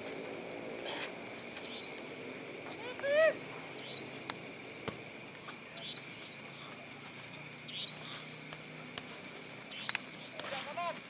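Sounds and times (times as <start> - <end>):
crickets chirring: 0.0 - 11.0
high shout: 2.8 - 3.4.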